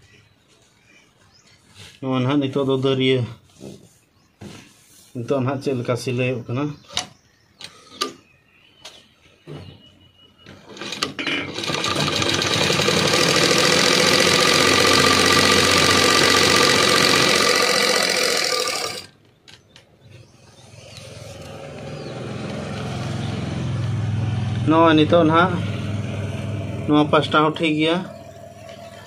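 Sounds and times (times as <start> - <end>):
sewing machine running: 10.7 - 19.1.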